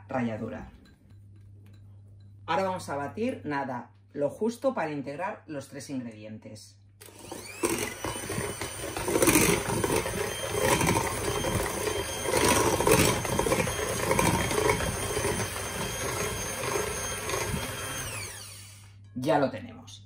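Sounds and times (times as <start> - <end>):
electric hand mixer whirring: 7.0 - 19.0.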